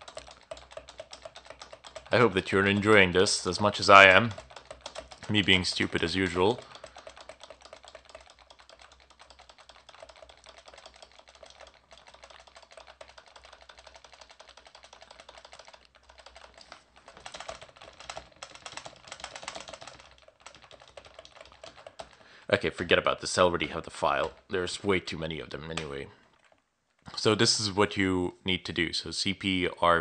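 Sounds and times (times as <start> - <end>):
keyboard keys tapping: 0.0 - 22.3.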